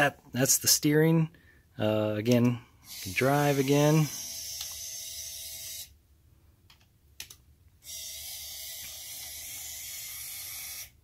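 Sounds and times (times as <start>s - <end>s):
small motor whirring: 2.8s - 6.0s, 7.8s - 11.0s.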